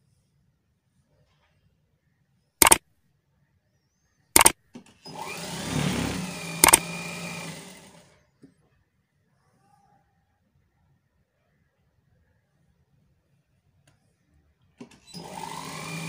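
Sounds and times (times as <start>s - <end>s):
sharp mouse clicks: 4.4s - 4.6s, 6.6s - 6.8s.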